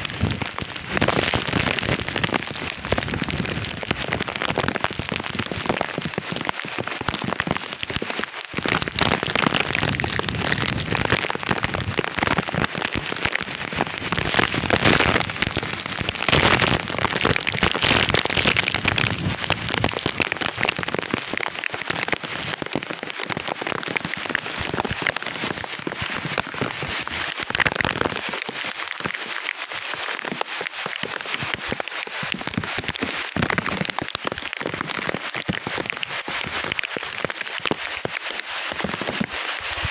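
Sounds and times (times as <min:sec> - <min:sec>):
heavy rain: 0:00.0 - 0:39.9
strong wind through trees: 0:18.7 - 0:20.2.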